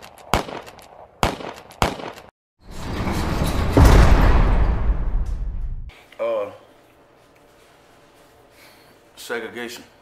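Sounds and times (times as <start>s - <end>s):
sharp cracks: 0.0s - 2.3s
heavy low boom: 3.7s - 5.9s.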